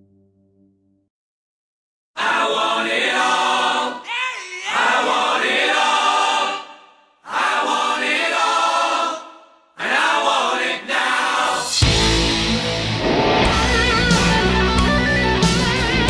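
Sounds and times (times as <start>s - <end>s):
choir singing: 2.2s - 12.4s.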